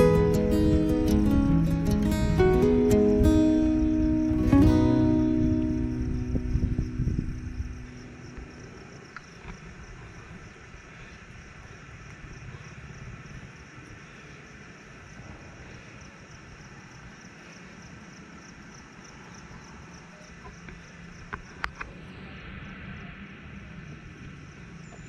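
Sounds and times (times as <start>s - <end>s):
low rumble: 0.0s - 10.6s
insects chirring: 0.0s - 25.0s.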